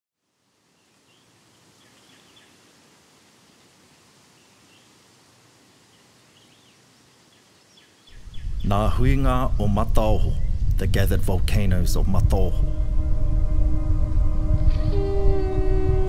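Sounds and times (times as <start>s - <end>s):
steady outdoor hiss: 0.2s - 16.0s
distant bird chirps: 5.8s - 10.9s.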